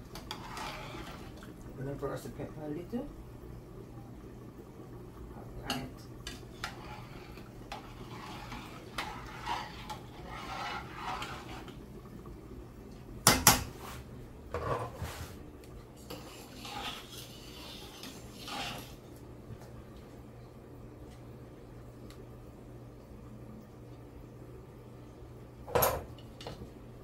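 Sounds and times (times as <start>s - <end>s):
metal spoon scraping in a pot: 0.1s - 1.4s, 5.6s - 11.8s, 16.0s - 19.0s.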